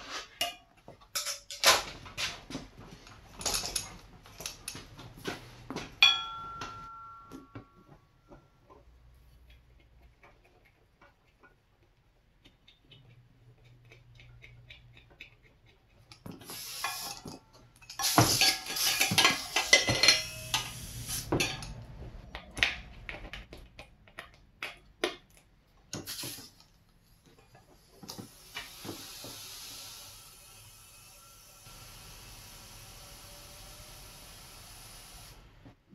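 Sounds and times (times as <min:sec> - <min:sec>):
metallic clinks: 0:06.0 - 0:07.9
compressed air hissing: 0:16.4 - 0:21.6, 0:26.0 - 0:26.6, 0:28.2 - 0:35.4.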